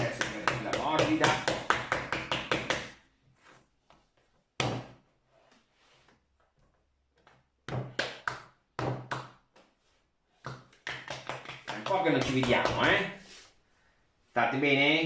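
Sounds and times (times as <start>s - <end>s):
hands slapping clay: 7.7s - 9.7s, 10.4s - 13.0s.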